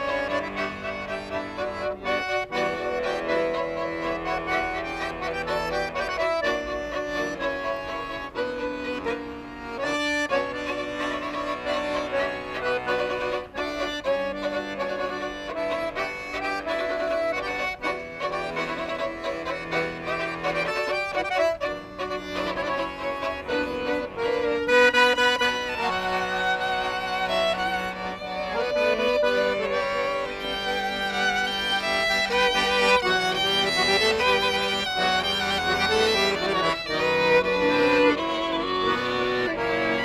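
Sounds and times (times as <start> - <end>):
accordion notes: 0.0 - 40.0
violin melody: 0.0 - 40.0.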